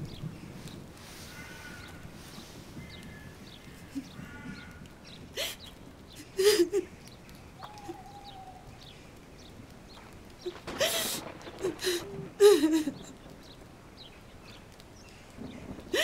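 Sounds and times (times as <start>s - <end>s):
faint birds calling: 0.1s - 16.0s
woman crying and sobbing: 5.4s - 7.0s, 10.6s - 13.2s.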